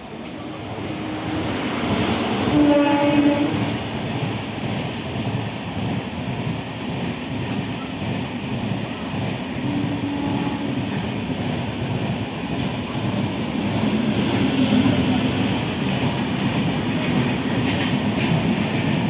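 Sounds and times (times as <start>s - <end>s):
passenger train passing: 0.0s - 19.0s
train horn: 2.4s - 3.7s, 9.6s - 10.9s.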